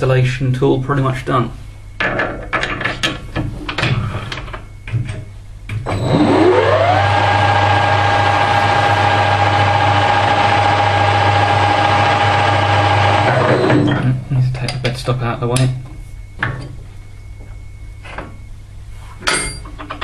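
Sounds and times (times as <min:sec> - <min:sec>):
low hum: 0:00.8 - 0:20.0
lathe motor whining: 0:05.8 - 0:14.2.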